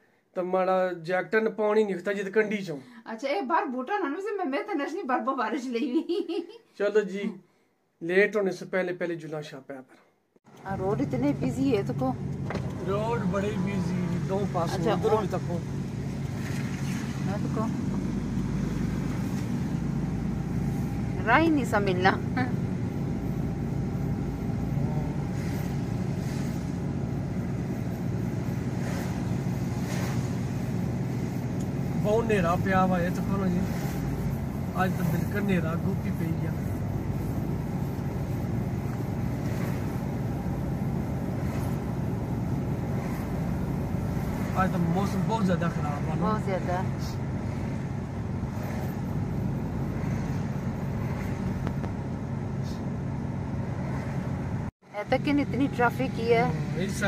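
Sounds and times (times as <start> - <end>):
car engine and road hum: 10.5 - 57.0
tyres swishing through water: 12.2 - 21.8, 22.8 - 52.0, 53.8 - 54.7.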